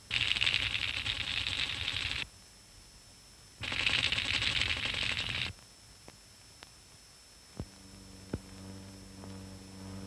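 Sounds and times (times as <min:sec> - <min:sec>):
fast clicking burst: 0:00.0 - 0:02.3, 0:03.6 - 0:05.5
low steady hum: 0:00.0 - 0:10.0.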